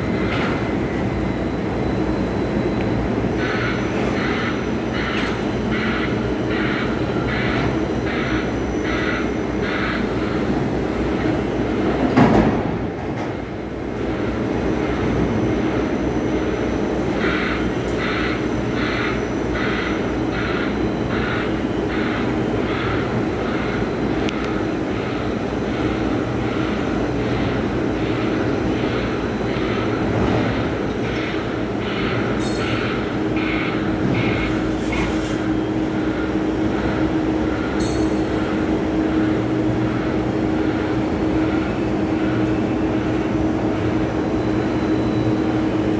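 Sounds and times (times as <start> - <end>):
warning alarm beeping: 0.0 - 10.4, 14.1 - 34.7
machine drone: 0.0 - 45.9.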